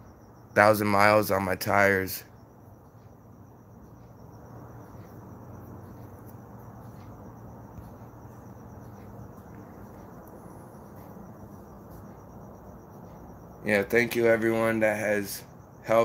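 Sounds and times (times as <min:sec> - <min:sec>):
crickets chirping: 0:00.0 - 0:16.0
low even hum: 0:00.0 - 0:16.0.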